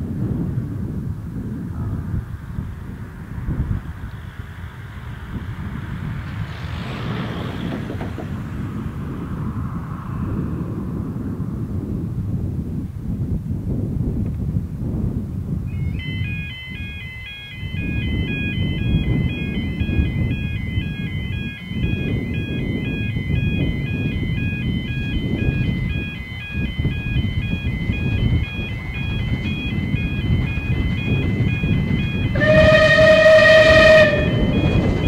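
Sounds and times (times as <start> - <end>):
approaching steam train: 0.0 - 12.8, 15.7 - 35.0
wind rumble: 0.0 - 35.0
two-tone electronic warning alarm: 15.7 - 35.0
steam whistle blast: 32.3 - 34.8.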